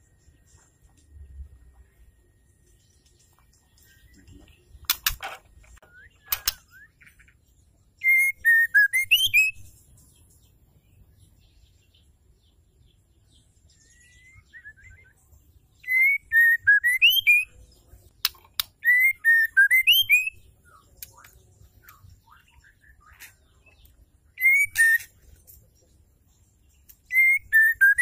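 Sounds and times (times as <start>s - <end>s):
sharp clicks: 4.8s - 6.7s, 18.2s - 18.8s
bird whistled calls: 8.0s - 9.7s, 13.9s - 15.2s, 15.8s - 17.6s, 18.8s - 20.5s, 24.3s - 25.1s, 27.1s - 28.0s.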